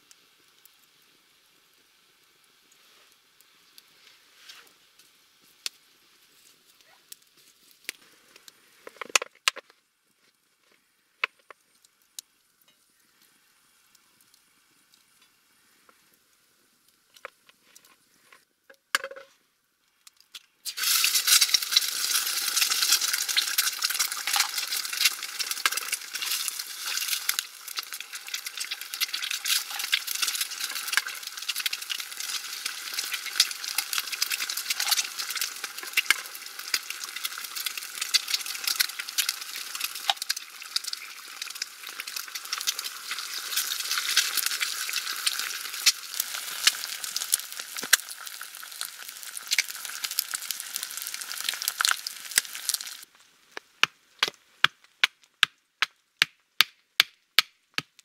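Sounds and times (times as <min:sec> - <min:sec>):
eggs sizzling in oil: 0:00.0 - 0:09.1, 0:20.3 - 0:53.8.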